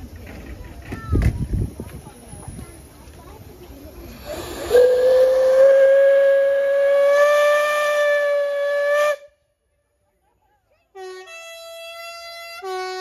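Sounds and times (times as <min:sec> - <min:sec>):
rush of steam: 0:00.0 - 0:09.3
steam locomotive whistle: 0:04.2 - 0:09.3, 0:11.0 - 0:13.0.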